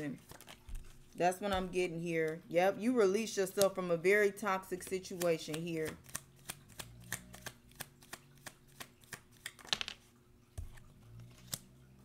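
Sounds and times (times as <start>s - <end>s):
cards being shuffled: 0.1s - 2.4s, 4.6s - 11.7s.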